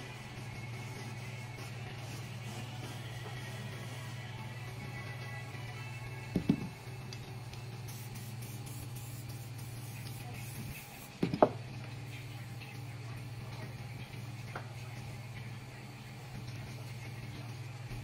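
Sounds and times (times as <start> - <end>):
aerosol spray hissing: 7.9 - 11.1.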